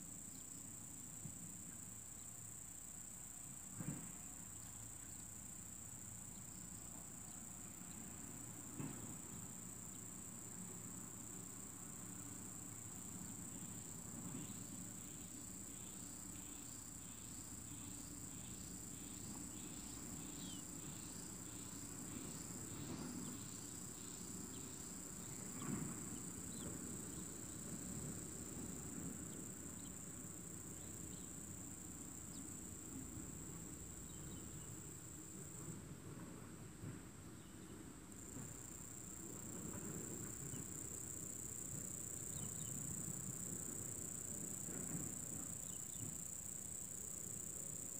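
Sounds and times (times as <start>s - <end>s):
insects chirring: 0.0s - 35.9s, 37.4s - 47.9s.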